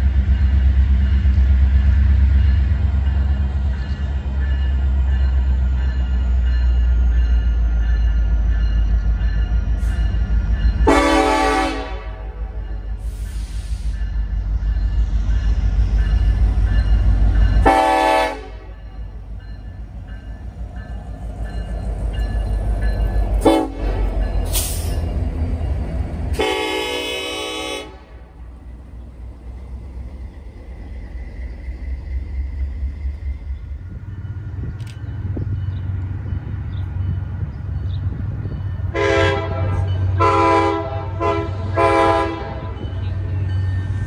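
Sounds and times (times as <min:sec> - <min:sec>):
diesel locomotive engine rumble: 0:00.0 - 0:44.0
train wheels on rails: 0:00.0 - 0:44.0
train air horn blasts: 0:10.8 - 0:14.0, 0:17.6 - 0:18.8, 0:23.4 - 0:25.0, 0:26.3 - 0:28.2, 0:38.9 - 0:42.8.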